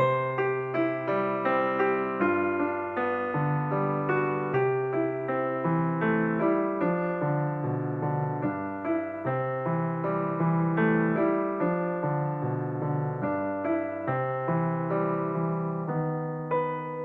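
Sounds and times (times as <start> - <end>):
gentle piano music: 0.0 - 17.0.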